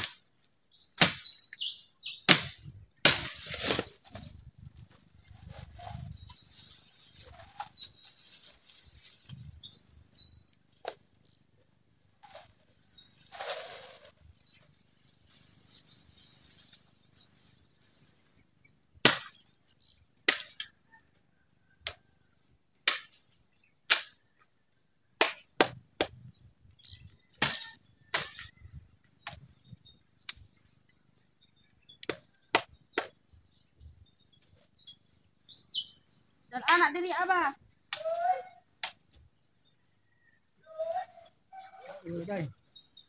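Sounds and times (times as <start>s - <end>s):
blade chopping bamboo: 1.0s - 1.3s, 2.3s - 3.9s, 19.1s - 19.4s, 27.4s - 28.5s.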